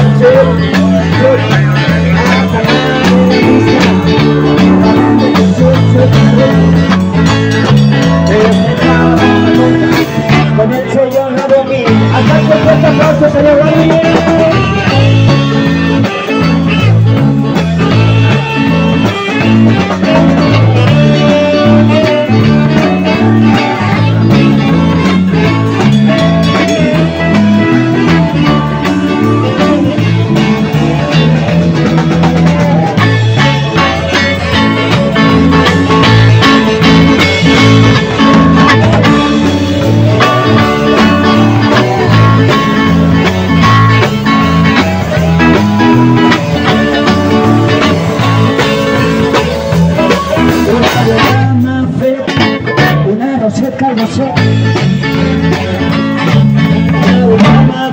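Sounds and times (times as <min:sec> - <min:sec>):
electric guitars playing: 0:00.0 - 0:57.9
low bass line: 0:00.0 - 0:57.9.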